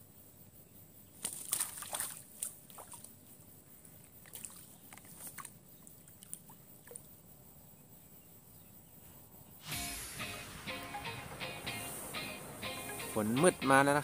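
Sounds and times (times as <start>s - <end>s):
pond water sloshing and splashing: 1.2s - 3.3s, 4.0s - 7.2s.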